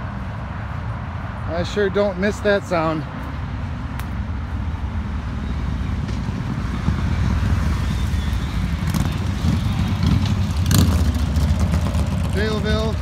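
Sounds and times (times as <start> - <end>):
road traffic: 0.0 - 13.0
motorcycles riding past: 5.0 - 13.0.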